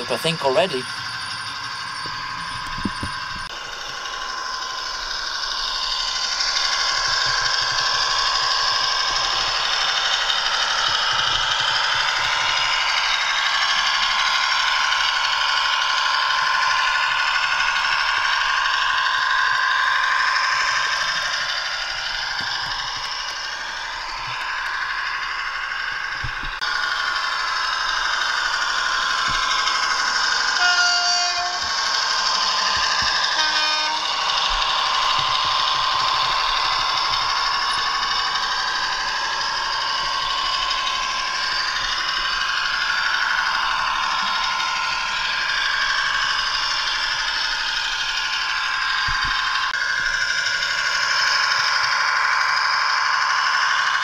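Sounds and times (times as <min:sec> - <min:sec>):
model train diesel engine sound: 0:00.0 - 0:54.0
squeaking wheel squeal: 0:28.0 - 0:49.8.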